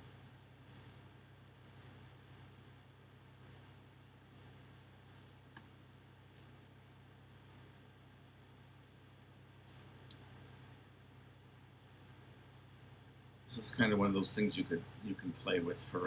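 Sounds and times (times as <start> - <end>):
low steady hum: 0.0 - 16.0
computer mouse clicks: 0.6 - 0.9, 1.6 - 2.4, 3.4 - 3.6, 4.3 - 6.6, 7.3 - 7.8, 9.6 - 10.7.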